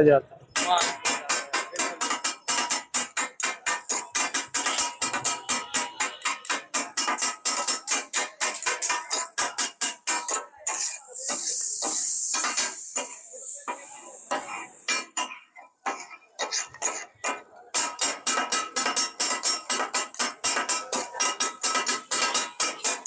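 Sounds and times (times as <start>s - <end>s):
food sizzling: 0.6s - 15.2s
metal spatulas clanging on griddle: 0.6s - 23.0s.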